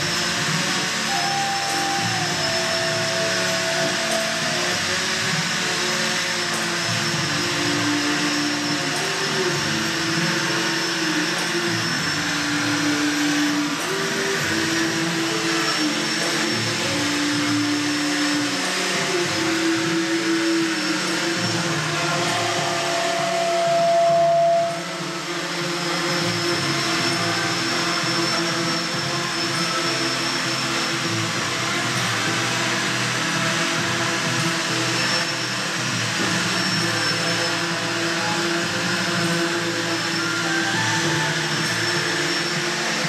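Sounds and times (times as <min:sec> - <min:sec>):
drone rotors buzzing: 0:00.0 - 0:43.0
higher whining tone: 0:00.0 - 0:43.0.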